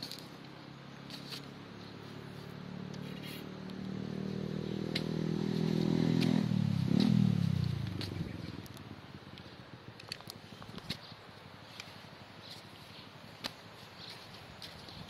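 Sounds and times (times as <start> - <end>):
passing vehicle engine: 0.6 - 9.1.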